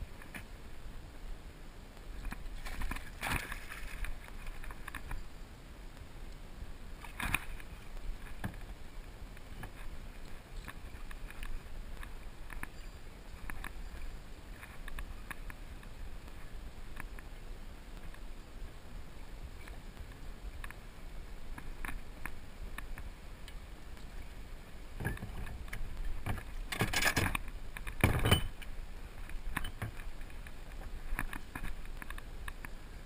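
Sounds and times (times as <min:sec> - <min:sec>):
water splashing: 0:02.2 - 0:04.9.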